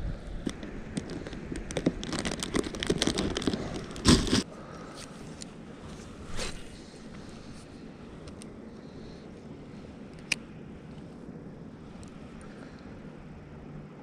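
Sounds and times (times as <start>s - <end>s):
handling noise in plastic kayak: 0.3s - 7.3s.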